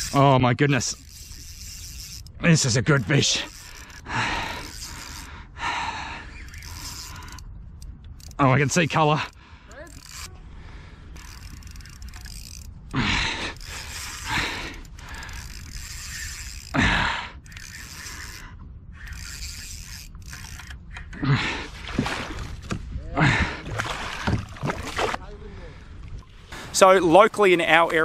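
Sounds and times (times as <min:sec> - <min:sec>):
fishing reel winding line: 0:00.0 - 0:05.4, 0:06.2 - 0:10.4, 0:11.0 - 0:16.8, 0:17.4 - 0:21.1.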